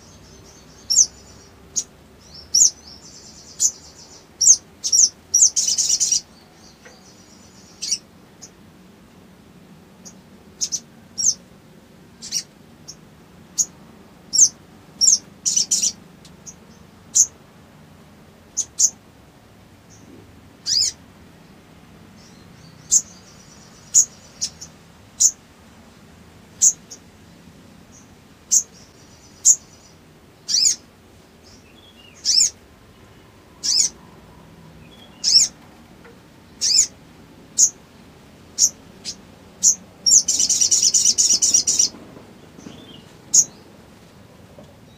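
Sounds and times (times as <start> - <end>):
bird chirping: 0.0 - 8.6, 10.0 - 11.4, 12.1 - 17.4, 18.5 - 19.0, 19.9 - 21.0, 22.0 - 25.4, 26.5 - 27.1, 27.8 - 37.8, 38.5 - 43.8
soft bird twitter: 10.0 - 11.4, 19.9 - 21.0, 22.2 - 25.4, 27.9 - 30.8, 31.4 - 34.2, 34.8 - 35.6, 36.5 - 37.0, 38.6 - 41.9.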